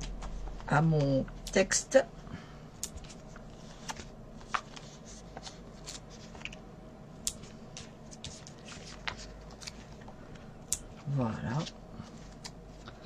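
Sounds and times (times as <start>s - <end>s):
paper rustling: 3.0s - 6.6s, 7.7s - 10.4s.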